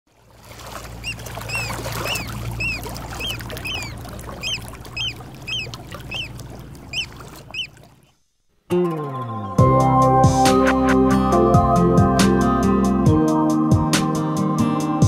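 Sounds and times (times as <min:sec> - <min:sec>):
bird high call: 0:01.0 - 0:07.9
music: 0:08.7 - 0:15.0.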